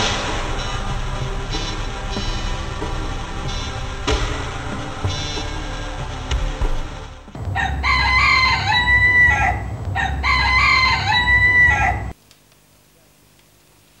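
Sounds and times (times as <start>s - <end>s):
rooster crowing: 7.5s - 12.2s.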